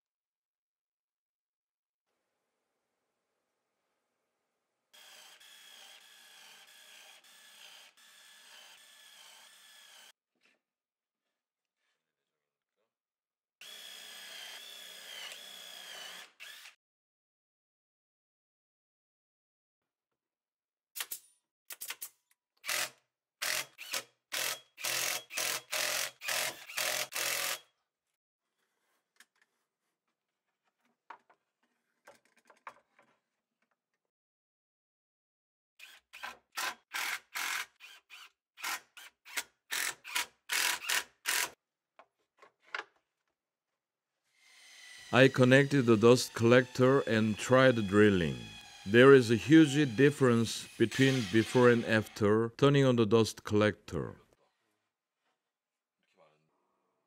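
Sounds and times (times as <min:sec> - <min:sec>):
cordless drill boring into wood: 0:05.0 - 0:10.1, 0:13.6 - 0:16.8, 0:22.6 - 0:27.6, 0:35.8 - 0:41.6, 0:46.6 - 0:50.0, 0:50.6 - 0:52.0
wooden parts being handled: 0:30.7 - 0:33.3.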